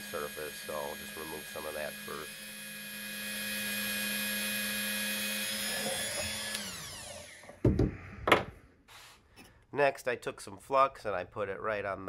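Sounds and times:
rotary tool grinding steel: 0.0s - 7.6s.

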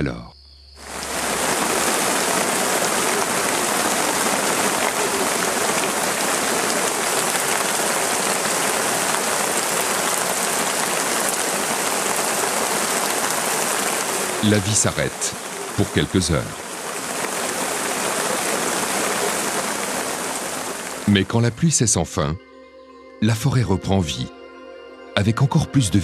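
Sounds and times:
heavy rain on foliage: 0.8s - 21.3s.

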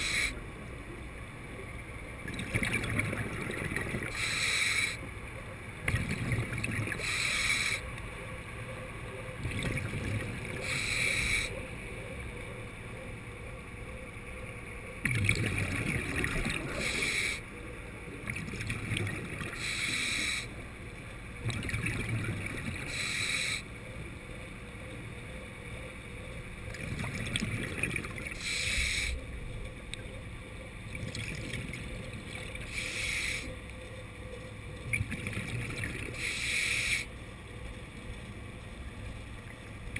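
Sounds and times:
regulator inhalation hiss: 0.0s - 0.4s, 4.1s - 5.0s, 7.0s - 7.8s, 10.6s - 11.5s, 16.8s - 17.4s, 19.6s - 20.5s, 22.9s - 23.6s, 28.4s - 29.2s, 32.7s - 33.5s, 36.2s - 37.1s
exhaled bubbles rumbling: 1.6s - 4.3s, 4.9s - 39.9s.

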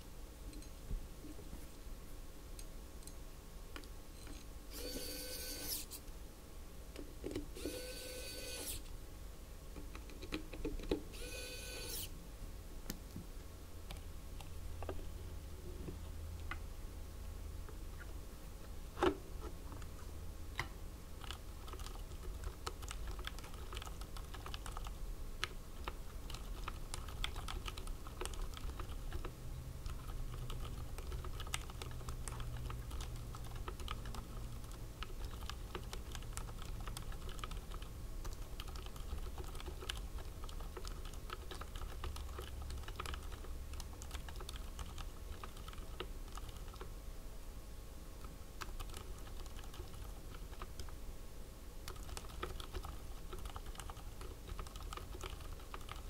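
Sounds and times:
mechanical keyboard typing: 21.2s - 46.9s, 48.6s - 51.0s, 51.8s - 56.0s.

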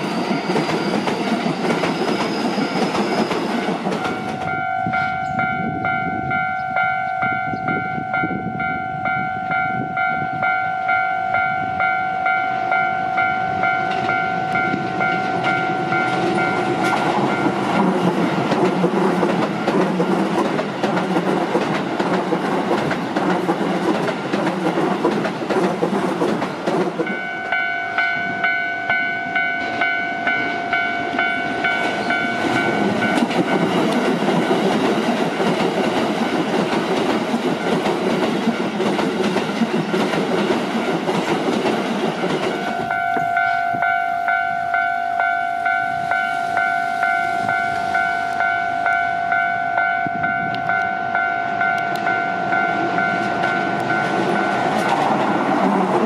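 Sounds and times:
train wheels rumbling on rails: 0.0s - 56.0s
level crossing bell ringing: 4.0s - 17.7s, 27.1s - 33.7s, 42.5s - 55.0s.

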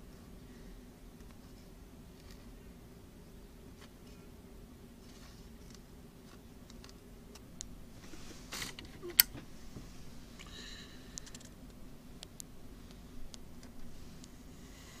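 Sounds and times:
low steady hum: 0.0s - 15.0s
handling rustle: 5.0s - 10.5s.

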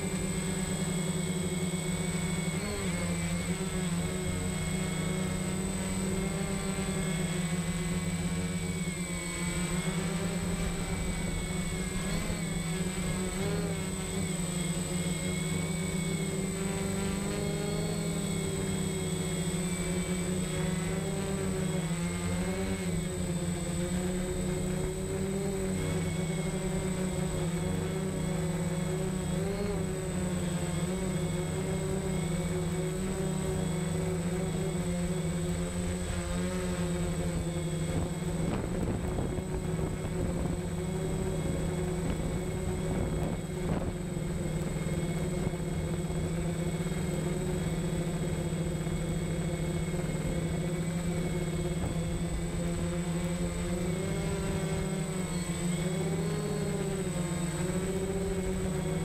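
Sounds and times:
drone motors buzzing: 0.0s - 59.0s
thin high whine: 0.0s - 59.0s.

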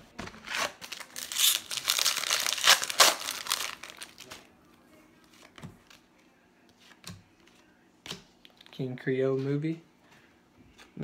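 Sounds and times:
wrapper tearing and crinkling: 0.4s - 4.5s.

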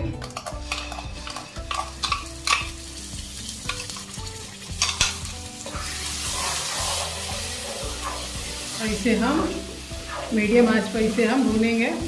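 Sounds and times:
paste sizzling in pan: 0.3s - 12.0s
spatula scraping steel bowl: 5.8s - 8.4s.

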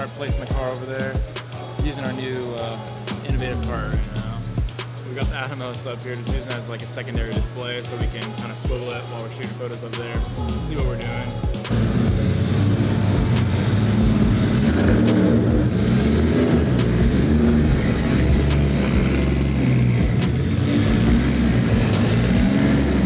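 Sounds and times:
car engine running at low revs: 10.3s - 23.0s.

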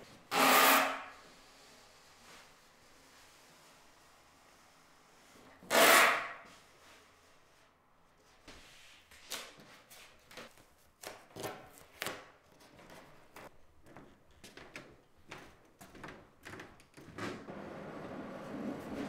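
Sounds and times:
masking tape ripped off roll: 5.6s - 6.4s.

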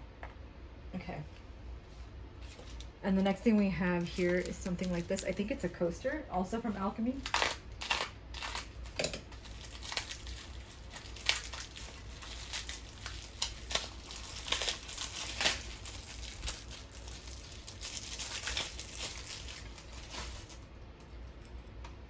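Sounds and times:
packaging wrap crinkling: 4.0s - 5.6s, 7.1s - 20.8s.

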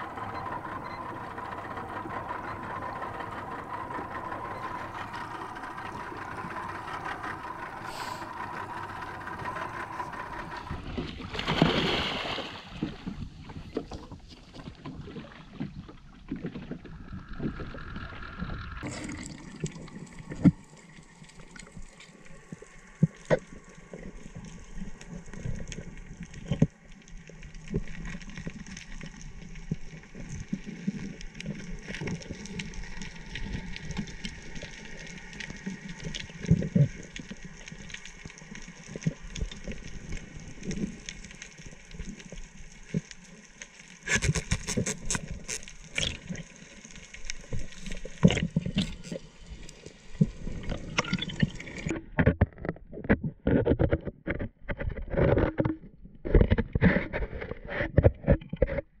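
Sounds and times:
underwater clicks and crackles: 0.0s - 11.8s, 12.7s - 59.0s
bubbling: 16.7s - 23.5s, 50.2s - 52.0s.

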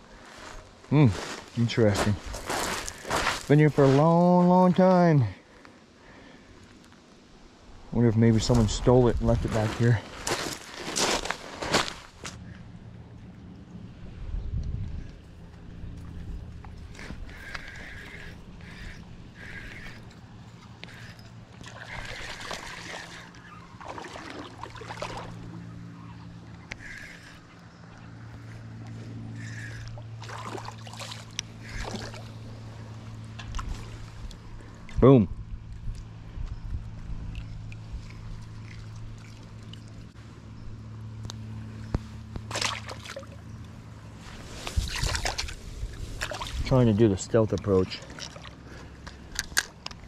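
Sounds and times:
rustling of grass and brush: 0.0s - 4.4s, 8.5s - 12.4s, 43.5s - 46.7s
lure splashing into water: 21.6s - 25.5s, 30.2s - 32.3s, 42.5s - 43.4s, 44.8s - 45.6s, 46.2s - 46.7s.

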